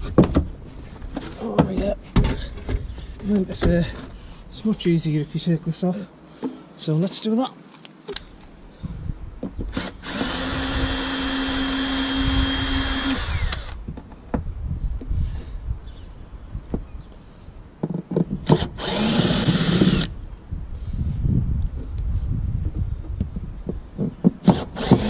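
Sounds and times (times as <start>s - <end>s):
cordless drill motor whine: 9.7s - 13.8s, 18.6s - 20.1s.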